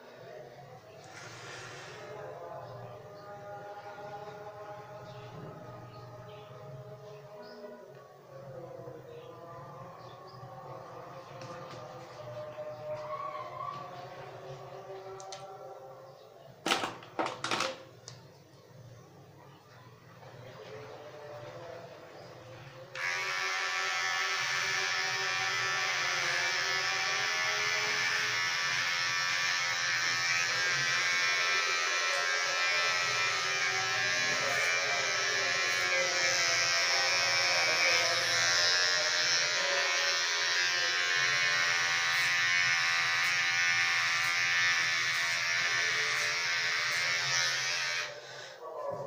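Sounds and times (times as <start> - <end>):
electric hair clippers running: 22.9 - 48.2.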